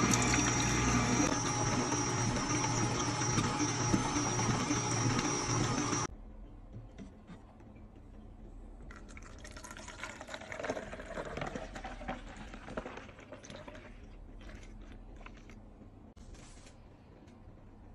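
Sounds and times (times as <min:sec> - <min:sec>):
juice pouring into plastic bottle: 0:08.9 - 0:15.6.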